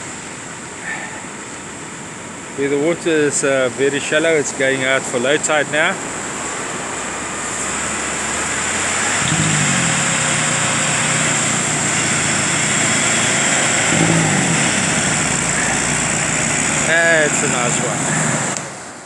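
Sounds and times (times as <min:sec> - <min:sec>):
tractor engine working under load: 0:00.0 - 0:19.0
waves breaking: 0:06.0 - 0:19.0.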